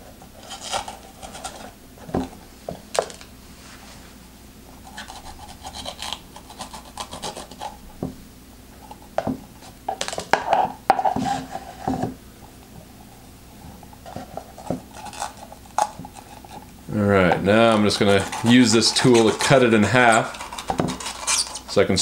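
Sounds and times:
spoon scraping inside pepper: 4.8 - 7.8, 14.1 - 16.8, 17.7 - 21.7.

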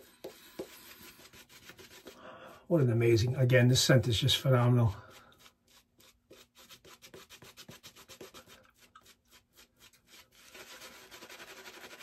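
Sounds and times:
shaving brush scrubbing face: 0.0 - 2.2, 4.4 - 12.0.

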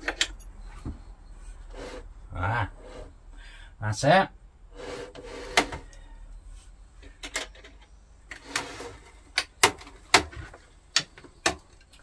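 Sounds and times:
short scraping rub: 1.4 - 2.1, 4.7 - 5.8.

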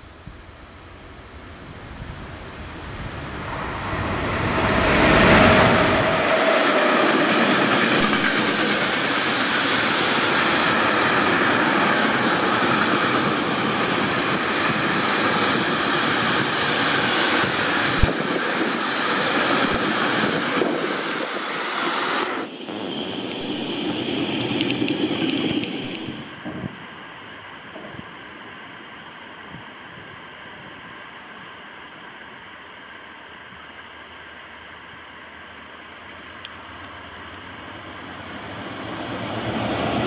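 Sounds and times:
locomotive passing with deep rumble: 2.3 - 9.1
wagon wheels rumbling on rail: 2.3 - 21.3.

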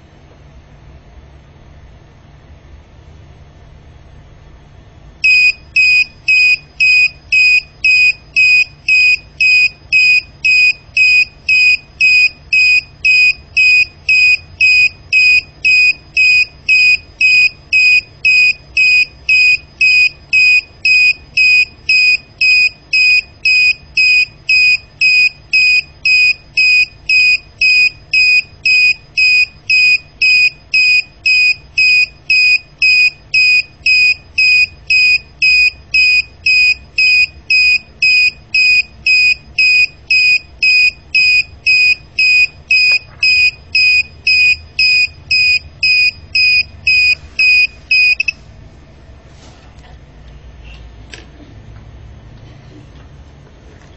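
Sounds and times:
alarm buzzer beeping rapidly: 5.2 - 48.4.

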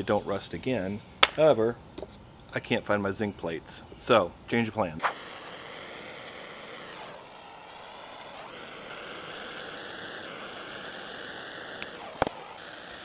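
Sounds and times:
gas torch flame hissing: 5.0 - 13.0.

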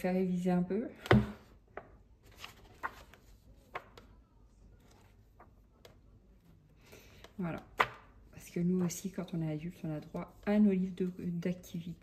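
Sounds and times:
paper rustling: 2.2 - 4.1.

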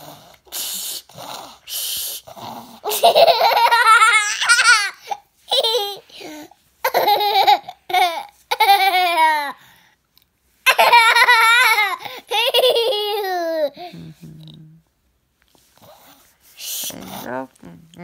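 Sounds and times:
toddler girl laughing: 2.8 - 6.1, 6.8 - 9.5, 10.7 - 13.8.

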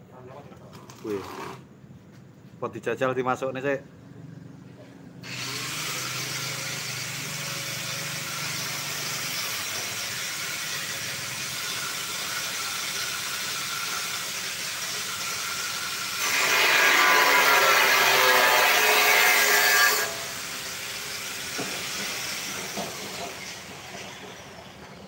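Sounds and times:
grinder grinding metal: 5.2 - 25.0.

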